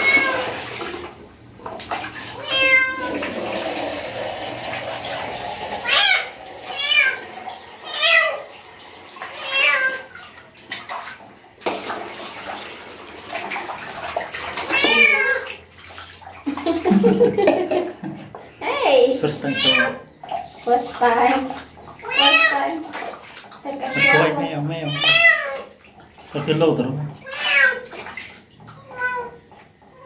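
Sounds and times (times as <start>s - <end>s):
water splashing and pouring: 0.0s - 30.0s
kitten meowing: 2.4s - 3.1s, 14.7s - 15.4s, 19.5s - 20.0s, 23.8s - 25.6s.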